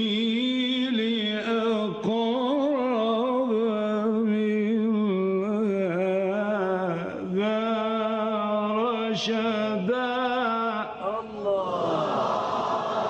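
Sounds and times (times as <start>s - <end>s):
man reciting in melodic chant: 0.0s - 11.8s.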